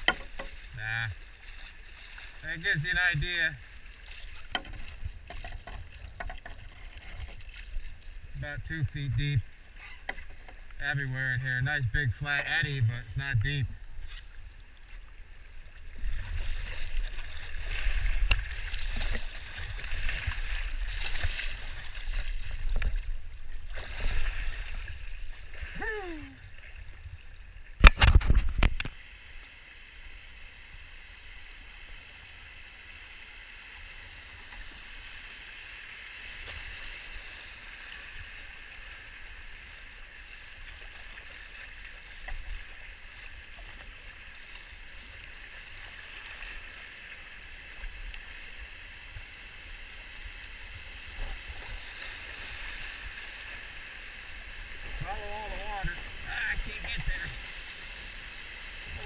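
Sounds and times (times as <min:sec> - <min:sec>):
kayak knocks and splashes: 0:00.0 - 0:02.3, 0:03.6 - 0:07.9, 0:15.9 - 0:25.6
creek water rushing: 0:00.0 - 0:59.0.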